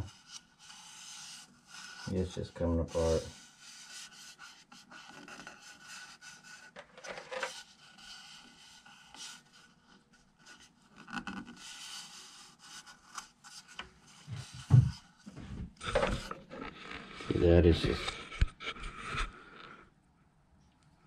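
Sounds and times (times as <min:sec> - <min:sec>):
fingers scraping wooden bowl: 0:00.0 - 0:06.8, 0:07.4 - 0:15.1.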